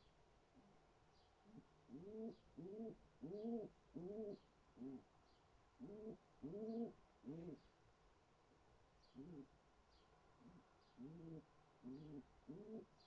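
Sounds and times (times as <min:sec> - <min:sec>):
pigeon cooing: 0:01.5 - 0:05.1, 0:05.8 - 0:07.6, 0:09.2 - 0:09.5, 0:10.4 - 0:13.0.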